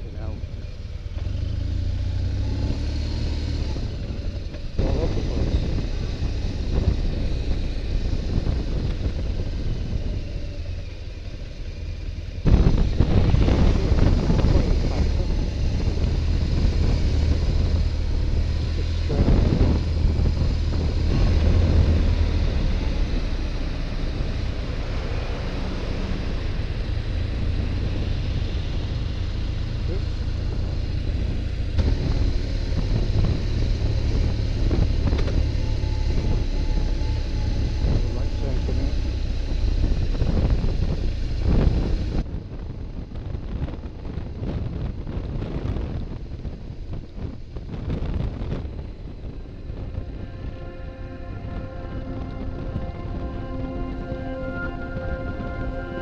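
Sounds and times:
motorcycle engine running: 0.0s - 50.2s
wind and road noise: 0.0s - 56.0s.

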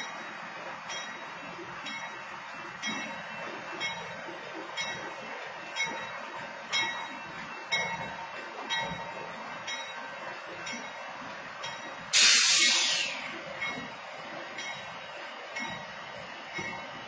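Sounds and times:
burst of air hiss: 12.2s - 13.3s.

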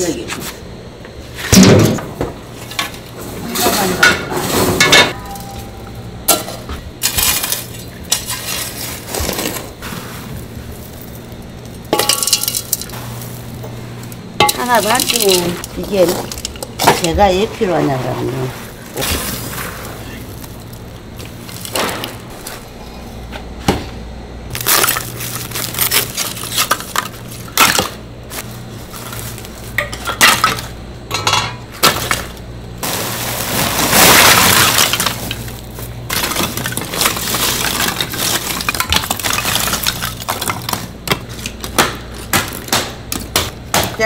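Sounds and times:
charcoal clinking and clattering: 1.5s - 22.6s, 24.5s - 44.0s
hammer knocking charcoal: 14.4s - 17.3s, 40.3s - 44.0s.

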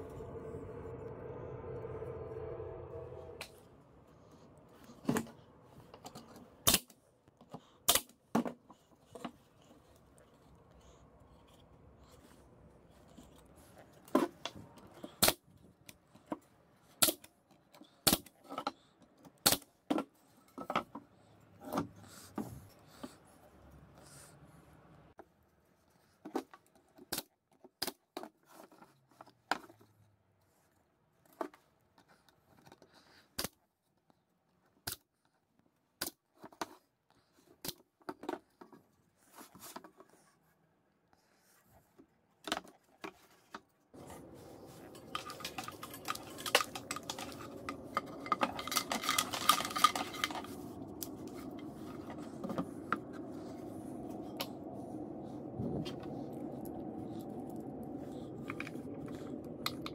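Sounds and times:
steady low hum: 0.0s - 5.8s, 44.0s - 59.9s.

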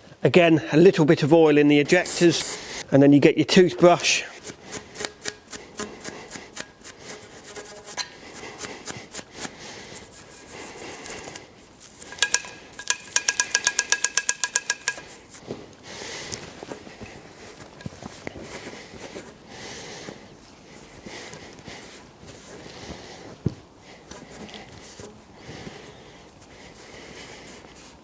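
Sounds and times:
toothbrush scrubbing metal: 4.6s - 9.0s
fast metallic strokes ringing: 12.0s - 15.2s.

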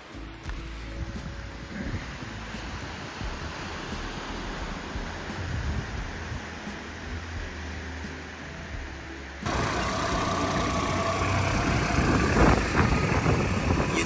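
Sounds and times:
small boat engine running: 9.4s - 14.0s.

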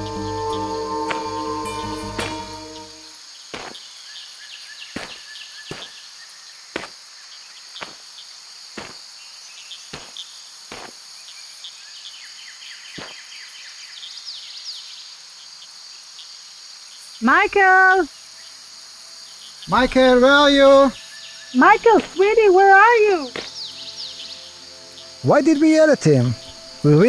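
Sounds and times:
crickets chirping: 0.0s - 27.0s
footsteps on gravel: 3.6s - 3.8s, 5.0s - 6.0s, 6.8s - 7.0s, 7.8s - 8.0s, 8.8s - 9.0s, 9.9s - 11.0s, 21.8s - 22.4s, 23.3s - 23.6s
bird chirps: 19.4s - 27.0s.

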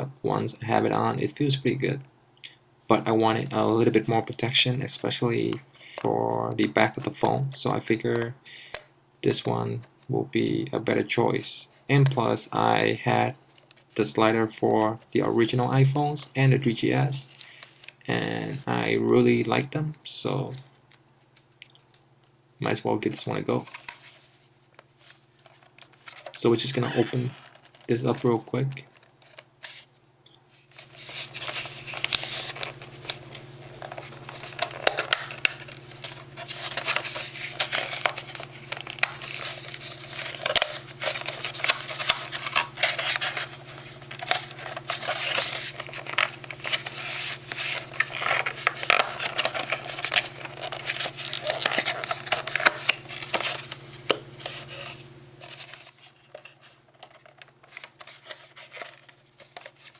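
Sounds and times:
plastic packaging crinkling: 30.7s - 59.9s.

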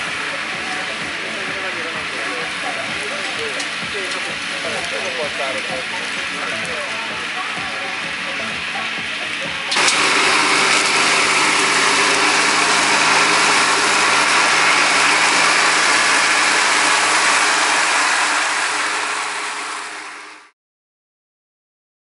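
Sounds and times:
mower cutting grass hiss: 0.0s - 20.5s
tractor diesel engine hum: 0.0s - 20.5s.

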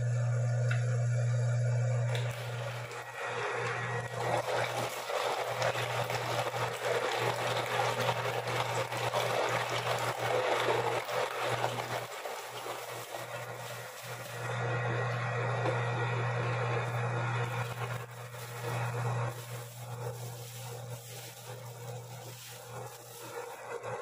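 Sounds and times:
meat grinder motor hum: 0.0s - 24.0s
wet rough grinding: 17.5s - 24.0s.

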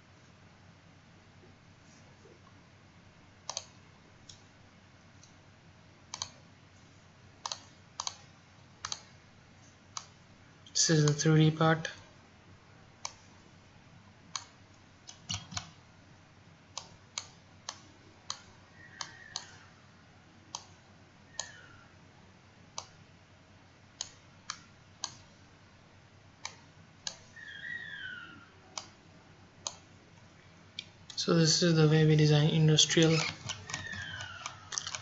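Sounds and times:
computer mouse clicking: 3.5s - 4.4s, 6.1s - 6.4s, 7.4s - 8.2s, 8.8s - 9.1s, 9.9s - 10.2s, 13.0s - 13.2s, 14.3s - 15.7s, 16.8s - 19.6s, 20.5s - 20.8s, 21.4s - 21.6s, 22.8s - 23.0s, 24.0s - 25.3s, 28.8s - 29.0s, 33.0s - 35.0s
faint high sliding chirps: 27.3s - 28.5s.

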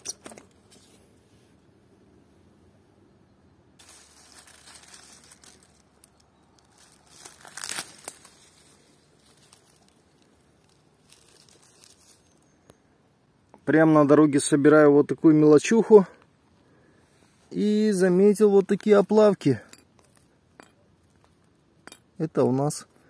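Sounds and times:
leaves and twigs rustling: 0.0s - 1.6s, 3.8s - 12.9s.

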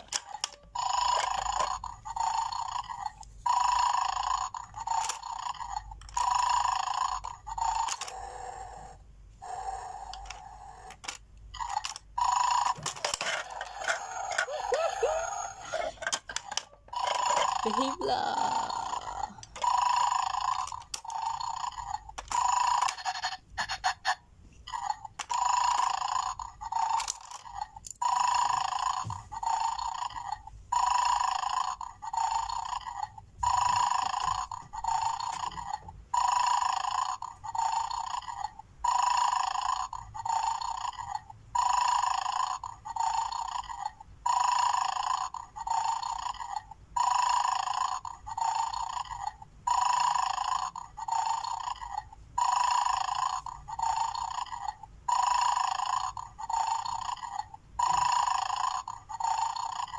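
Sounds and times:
electronic toy snoring: 0.0s - 59.9s.

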